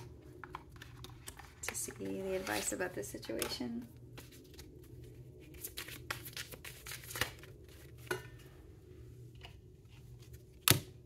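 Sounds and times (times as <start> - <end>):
low steady hum: 0.0 - 11.0
cards being shuffled: 4.1 - 8.0.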